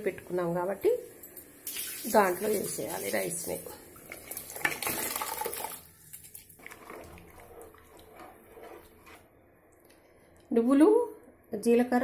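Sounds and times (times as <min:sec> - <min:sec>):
spatula stirring rice in pot: 0:06.6 - 0:09.4.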